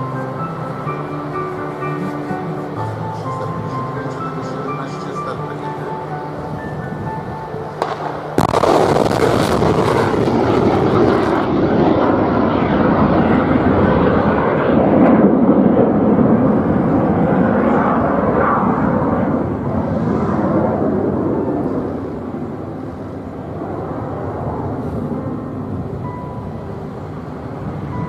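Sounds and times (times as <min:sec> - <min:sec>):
rocket motor roaring: 0:07.8 - 0:12.2
rocket booster blast: 0:07.8 - 0:16.5.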